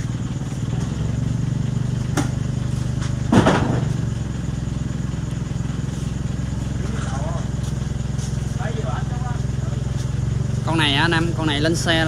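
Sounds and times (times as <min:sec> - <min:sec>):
engine running: 0:00.0 - 0:12.0.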